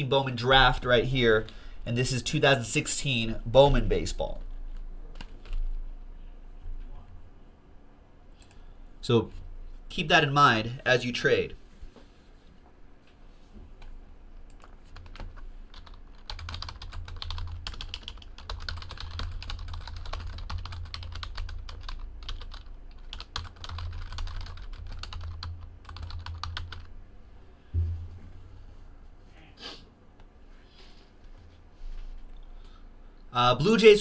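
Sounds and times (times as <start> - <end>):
dull thump: 27.8 - 28.6.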